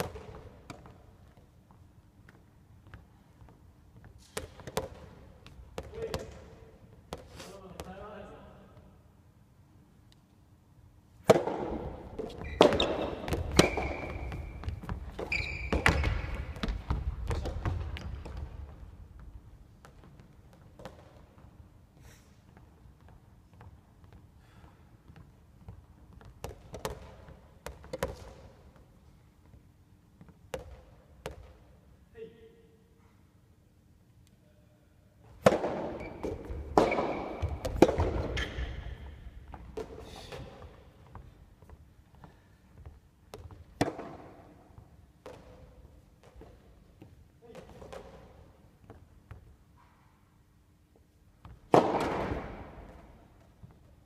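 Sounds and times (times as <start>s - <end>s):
racket hitting ball: 11.2s - 18.5s, 35.3s - 40.6s, 43.4s - 46.5s, 51.7s - 53.2s
ball bouncing on wooden floor: 11.3s - 21.2s, 25.0s - 28.8s, 35.4s - 41.8s, 42.8s - 49.5s
sneaker squeaks on floor: 12.2s - 16.9s, 35.9s - 39.2s
brief squeak: 15.2s - 16.3s.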